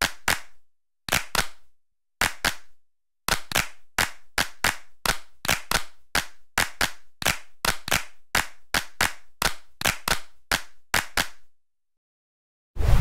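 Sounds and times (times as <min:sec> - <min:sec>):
sharp clap-like clicks: 0:00.0 - 0:01.6, 0:02.2 - 0:02.7, 0:03.3 - 0:11.4.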